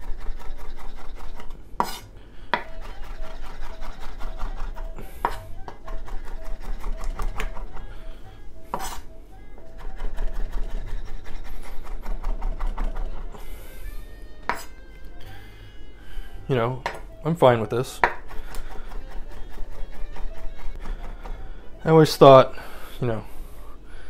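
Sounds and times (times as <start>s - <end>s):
knife chopping on wooden board: 0.0s - 7.8s, 8.7s - 9.1s, 9.8s - 13.3s, 14.5s - 14.8s, 16.8s - 17.1s, 18.0s - 21.5s.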